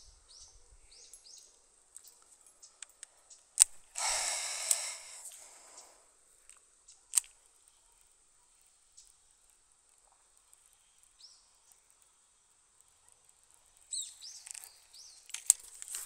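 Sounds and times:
small birds chirping: 0.0s - 16.0s
fishing reel clicks: 3.6s - 5.9s
fishing line hissing off reel: 3.8s - 6.1s.

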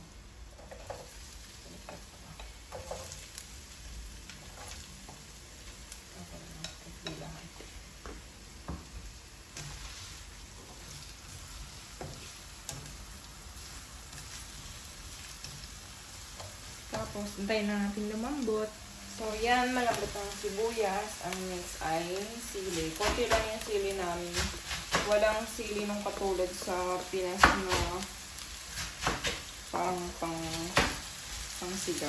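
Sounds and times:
onions sizzling in oil: 0.0s - 32.0s
spatula scraping and tapping: 0.6s - 3.4s, 11.7s - 13.1s.

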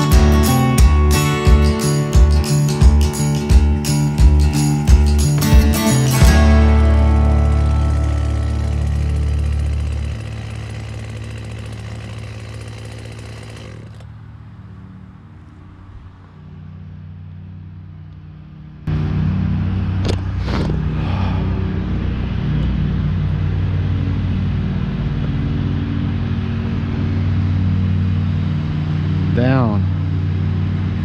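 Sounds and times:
engine running: 0.0s - 31.0s
low hum: 0.0s - 31.0s.

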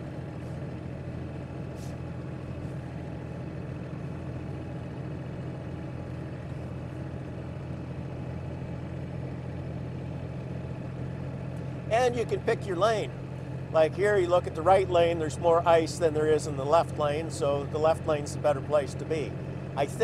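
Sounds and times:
vehicle engine and road noise: 0.0s - 20.0s.

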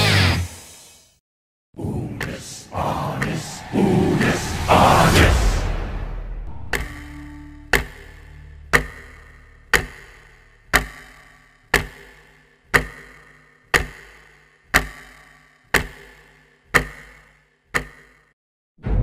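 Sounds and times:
clock ticking: 6.7s - 18.3s.

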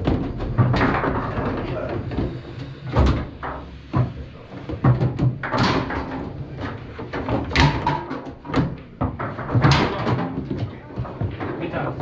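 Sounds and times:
foosball ball and rods knocking: 0.0s - 12.0s.

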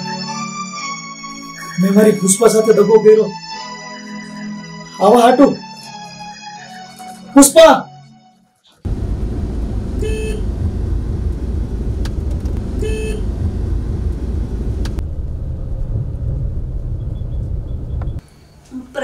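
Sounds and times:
car cabin road rumble: 8.9s - 18.2s
car horn beeps: 9.9s - 10.7s, 12.6s - 13.7s.

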